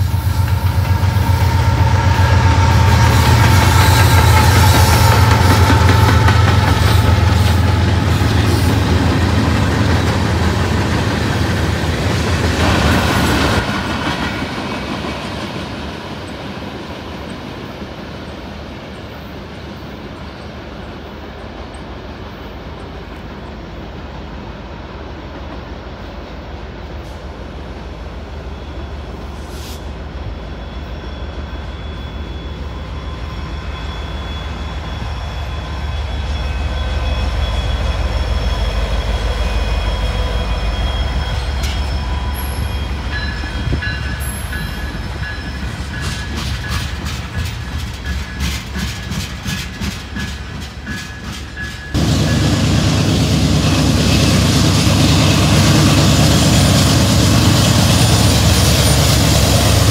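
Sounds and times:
diesel locomotives passing: 0:00.0 - 0:59.9
distant train rumble: 0:00.0 - 0:59.9
train wheels rolling on rails: 0:00.0 - 0:59.9.

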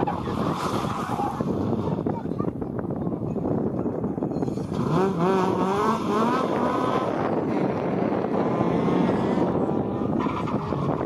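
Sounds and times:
rally car engine accelerating: 0:04.4 - 0:11.0.

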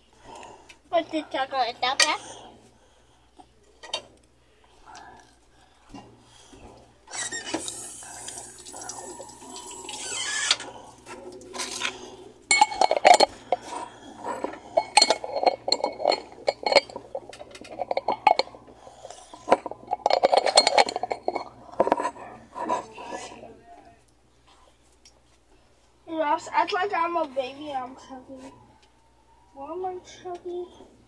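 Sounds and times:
hard objects clinking and knocking: 0:11.6 - 0:23.3.

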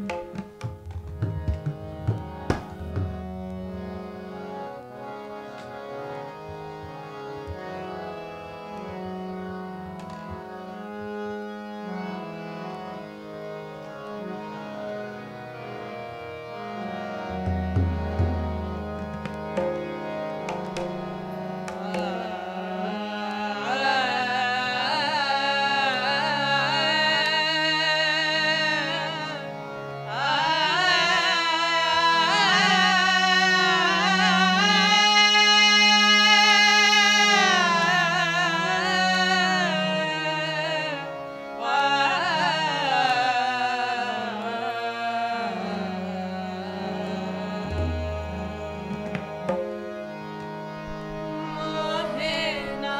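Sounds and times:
tabla: 0:00.0 - 0:11.3, 0:15.3 - 0:52.9
harmoniums: 0:00.0 - 0:52.9
voices singing ornamented melody: 0:19.4 - 0:52.9.

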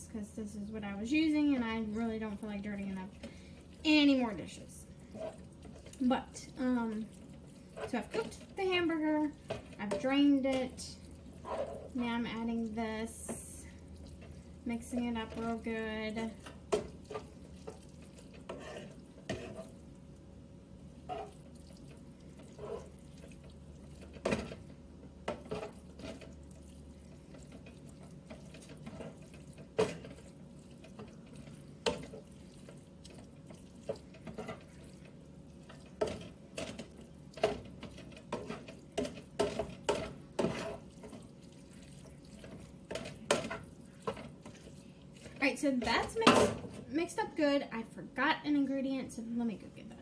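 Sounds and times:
spoon scraping food in pan: 0:05.0 - 0:06.0, 0:07.1 - 0:12.1, 0:14.0 - 0:19.8, 0:21.0 - 0:46.6.

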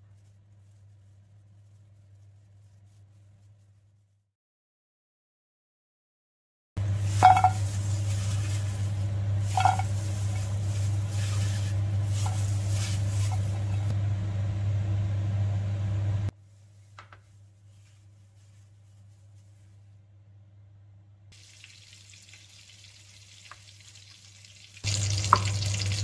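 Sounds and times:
rustling: 0:00.0 - 0:04.2, 0:06.8 - 0:14.0, 0:16.4 - 0:20.0
steady low hum: 0:06.8 - 0:21.3.

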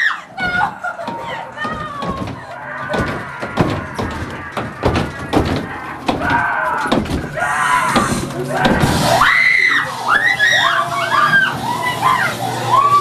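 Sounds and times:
loud thuds and bangs: 0:00.4 - 0:09.2
shrill voice crying out: 0:06.2 - 0:13.0.

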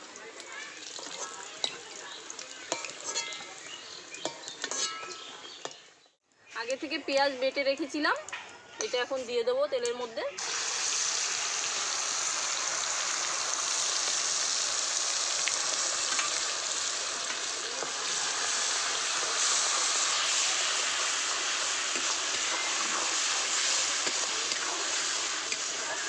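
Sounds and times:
onion paste sizzling in hot oil: 0:00.0 - 0:06.0, 0:06.6 - 0:26.0
steel spatula stirring: 0:00.8 - 0:05.8, 0:16.0 - 0:26.0.

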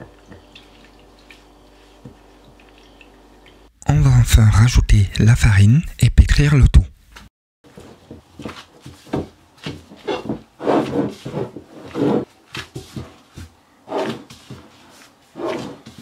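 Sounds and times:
hands kneading dough on plate: 0:07.7 - 0:16.0.

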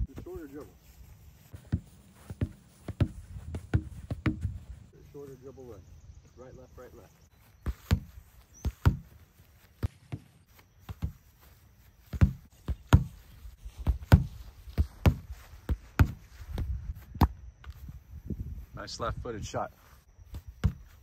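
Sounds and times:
foot kicking soccer ball: 0:00.0 - 0:04.9, 0:07.4 - 0:18.0, 0:20.2 - 0:21.0.

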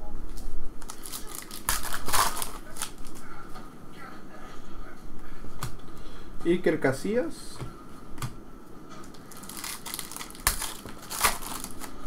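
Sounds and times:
foil wrapper crinkling and tearing: 0:00.8 - 0:03.2, 0:09.1 - 0:12.0.

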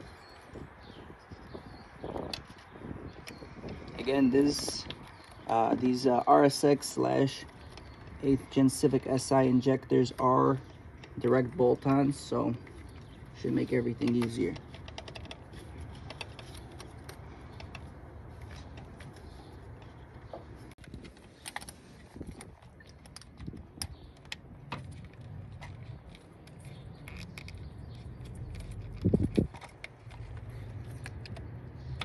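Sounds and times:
small metallic clicks and rattles: 0:07.3 - 0:32.0.

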